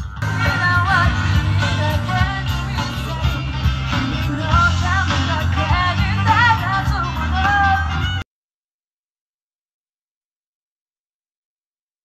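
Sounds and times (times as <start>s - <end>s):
rock song with singing and guitars: 0.0s - 8.2s.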